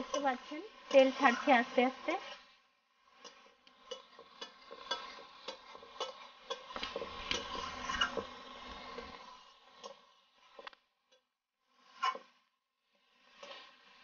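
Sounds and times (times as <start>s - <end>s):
paste sizzling in oil: 0.0s - 10.7s
metal spatula scraping a pan: 0.0s - 10.8s, 11.7s - 14.0s.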